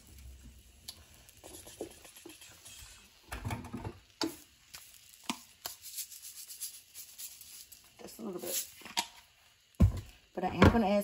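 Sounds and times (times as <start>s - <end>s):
salt and pepper shakers clicking: 0.9s - 3.0s, 4.2s - 9.1s.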